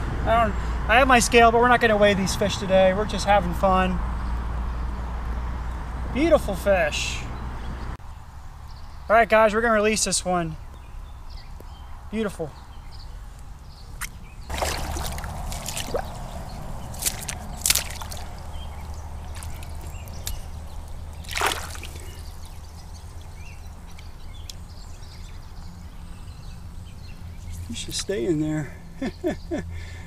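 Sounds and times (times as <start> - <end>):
water sloshing and splashing: 14.5 - 24.2.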